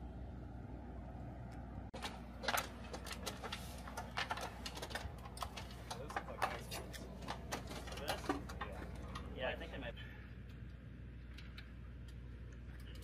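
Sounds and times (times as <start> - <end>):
steady low hum: 0.0 - 13.0
clicks and knocks on metal ladder: 2.0 - 9.3.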